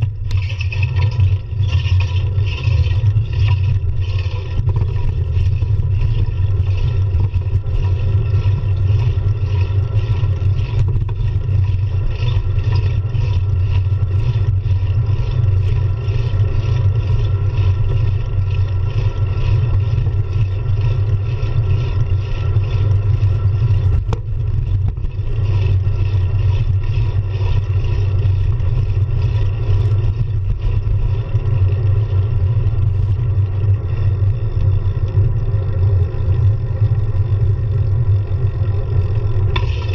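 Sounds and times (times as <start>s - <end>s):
bicycle wind and road rumble: 0.0s - 39.9s.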